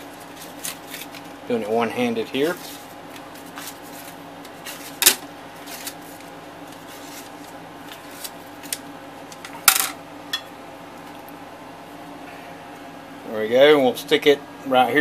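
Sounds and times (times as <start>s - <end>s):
faint steady hum: 0.0s - 15.0s
taps and rustles of handling: 2.2s - 11.4s.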